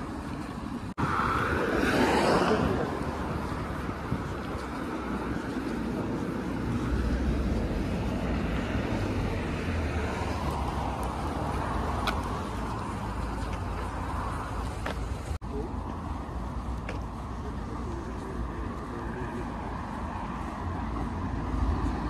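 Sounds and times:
rumble of cars: 0.0 - 22.0
lorry passing: 1.0 - 14.7.

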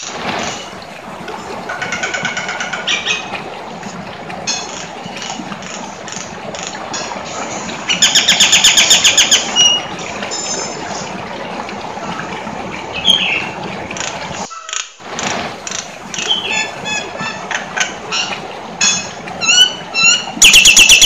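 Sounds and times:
bird whistles and chirps: 19.5 - 21.0.

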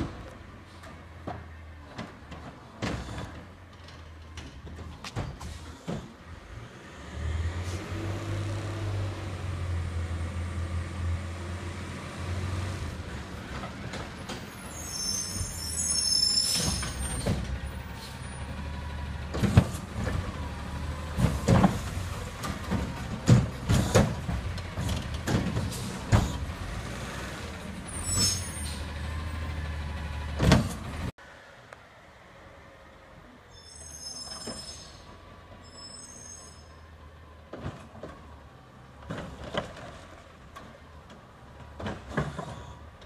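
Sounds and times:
air brakes hissing: 5.4 - 6.2, 14.4 - 18.5.

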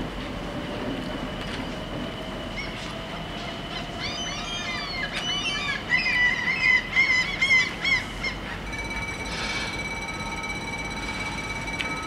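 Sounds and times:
faint steady tone: 8.6 - 12.0.

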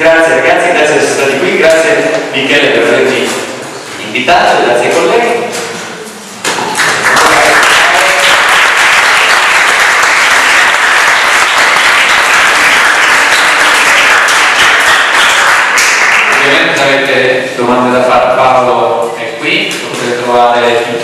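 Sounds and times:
audience applauding: 6.7 - 16.6.

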